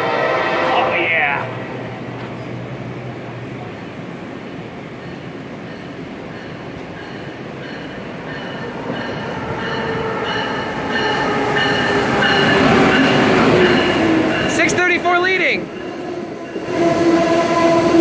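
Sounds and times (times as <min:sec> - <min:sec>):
train rumbling: 0:00.0 - 0:18.0
locomotive whining tones: 0:05.1 - 0:18.0.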